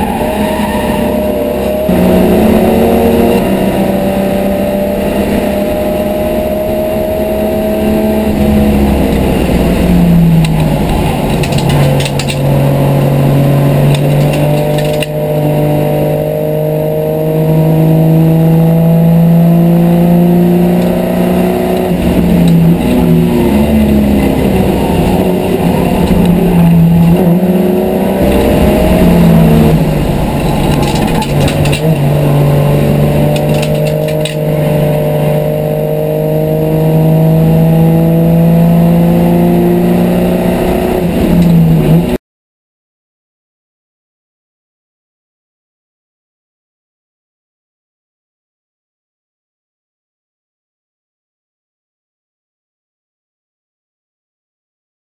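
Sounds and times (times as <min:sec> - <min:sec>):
race car engine revving: 0:00.0 - 0:42.2.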